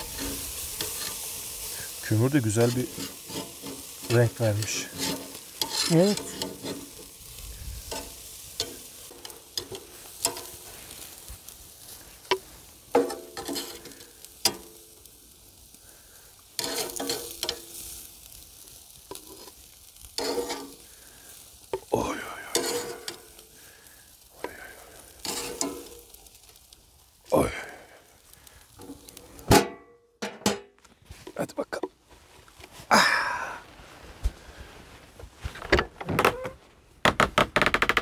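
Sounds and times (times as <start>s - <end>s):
metal tongs clinking on grate: 0.0s - 7.2s, 7.8s - 10.6s, 12.3s - 14.9s, 16.6s - 18.0s, 20.2s - 20.8s, 22.5s - 23.4s, 25.2s - 26.2s
steaks sizzling on a grill: 0.0s - 29.5s.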